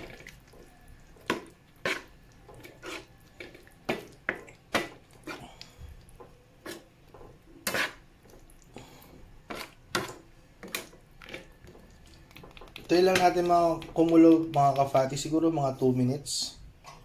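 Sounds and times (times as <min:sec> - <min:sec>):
metal spatula scraping frying pan: 0:01.8 - 0:03.2, 0:07.6 - 0:08.1.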